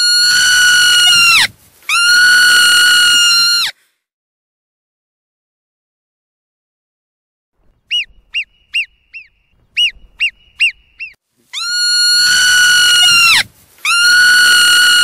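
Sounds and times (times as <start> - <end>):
marmot whistling calls: 7.8 - 15.0.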